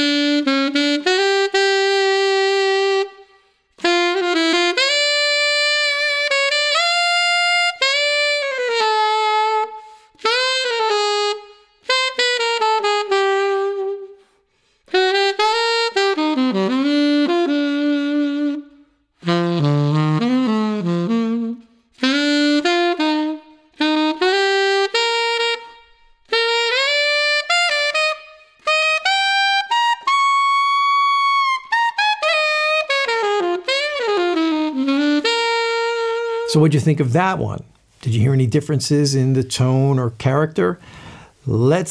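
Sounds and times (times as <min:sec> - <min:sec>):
solo saxophone melody: 0:00.0 - 0:38.4
player breathing: 0:40.8 - 0:41.5.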